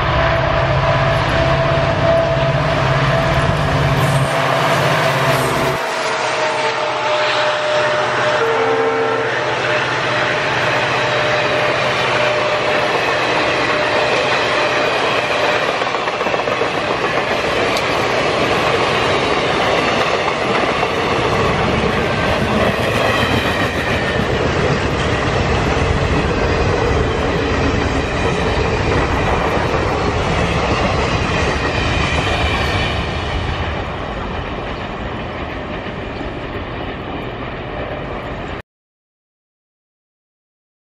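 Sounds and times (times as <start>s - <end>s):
train wheels rattling over rails: 10.5s - 38.5s.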